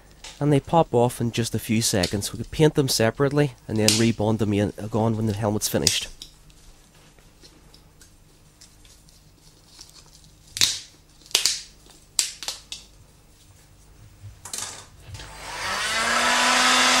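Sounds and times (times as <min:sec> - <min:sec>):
plastic clicks and snaps: 0:10.6 - 0:12.9
heat gun blower rushing: 0:15.1 - 0:17.0.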